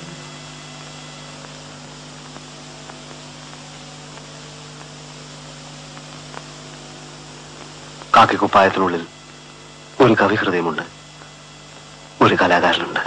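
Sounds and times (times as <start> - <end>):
electrical mains hum with hiss: 0.0 - 13.0
faint clicks: 0.8 - 8.2.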